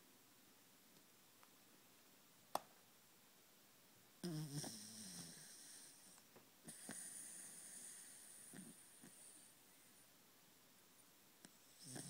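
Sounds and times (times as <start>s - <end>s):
dog snoring: 4.2s - 9.5s, 11.6s - 12.0s.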